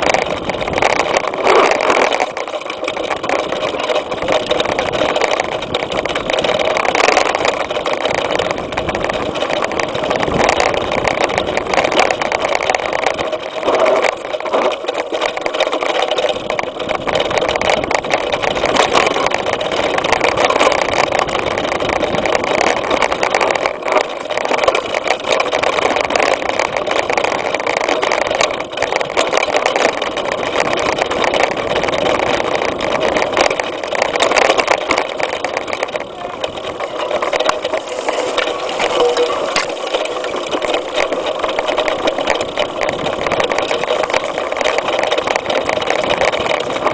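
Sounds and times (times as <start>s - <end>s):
bike rattling and clicking: 0.0s - 46.9s
wind rushing on microphone: 8.1s - 12.3s.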